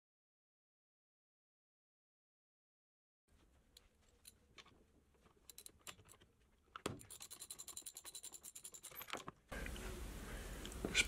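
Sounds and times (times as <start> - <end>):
hand ratchet clicking: 7.0 - 9.2.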